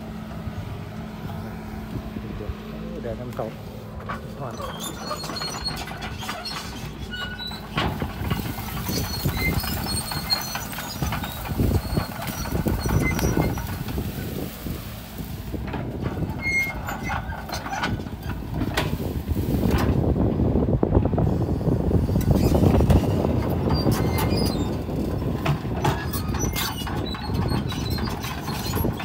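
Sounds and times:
excavator diesel engine running: 0.0s - 29.0s
knocks and crunching thumps: 4.0s - 20.1s.

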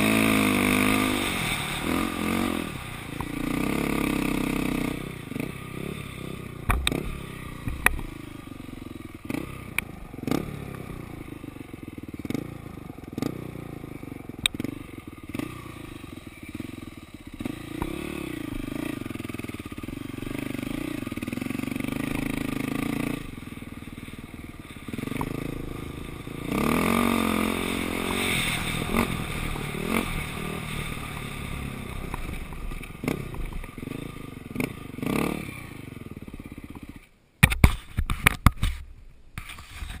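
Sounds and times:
dirt bike engine revving: 0.0s - 37.1s
rattles from rough riding: 0.0s - 40.0s.

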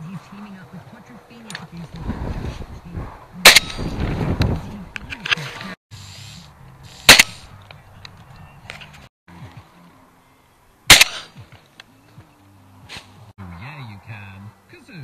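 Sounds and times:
shotgun shots: 3.4s - 3.9s, 7.1s - 7.5s, 10.9s - 11.4s.

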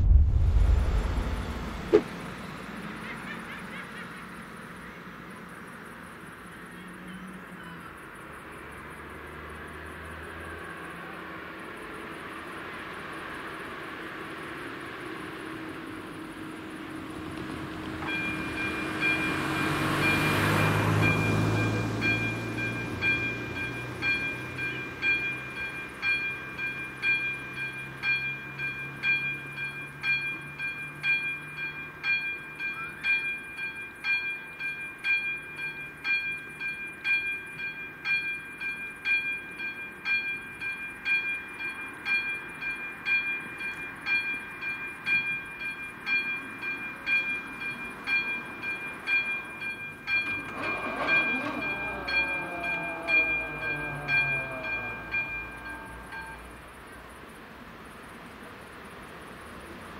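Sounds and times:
level crossing bell ringing: 18.0s - 56.6s.

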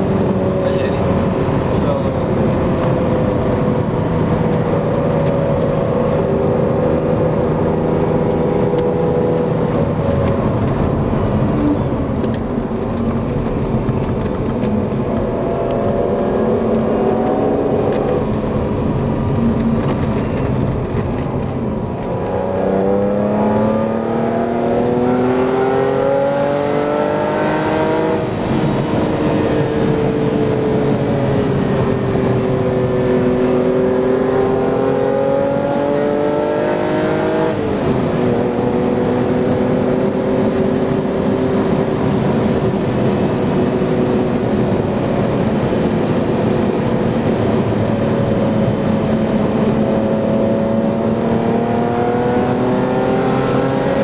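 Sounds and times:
car engine accelerating in cabin: 0.0s - 54.0s.

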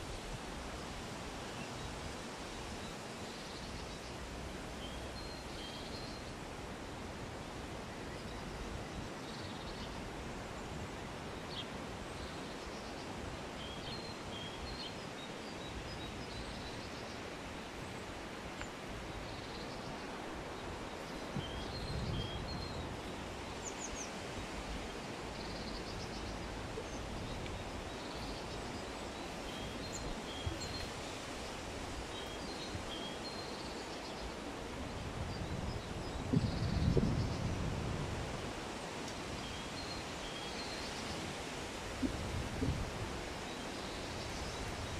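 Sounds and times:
breeze through foliage: 0.0s - 44.9s
wind gusting on microphone: 20.1s - 24.6s, 34.6s - 39.7s, 41.1s - 44.9s.

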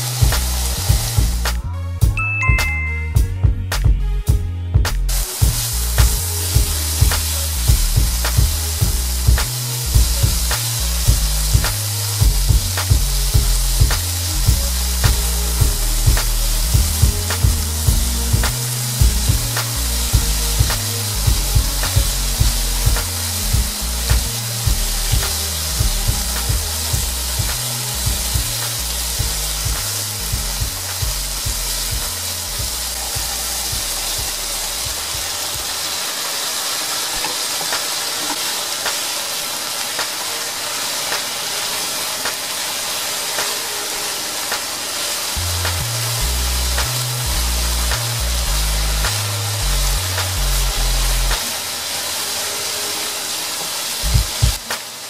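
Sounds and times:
food sizzling in frying pan: 0.0s - 1.6s, 5.1s - 55.0s
low thumps: 0.0s - 35.3s, 54.1s - 54.6s.

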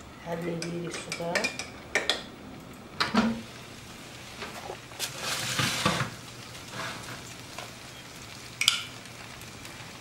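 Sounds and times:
meat sizzling in hot oil: 3.3s - 10.0s.

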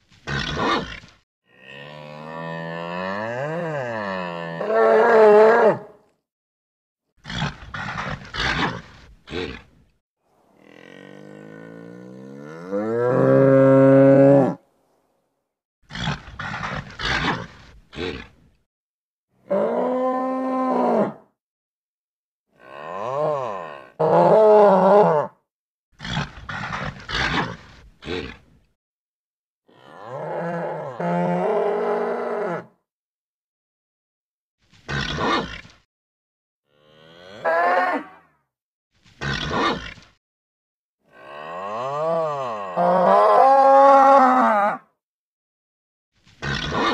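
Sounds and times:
bull grunting: 10.5s - 14.0s.

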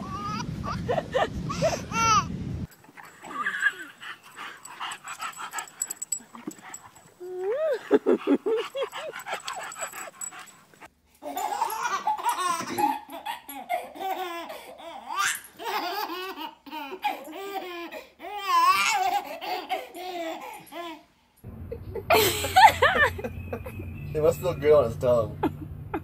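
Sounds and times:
baby laughing: 11.2s - 21.0s.

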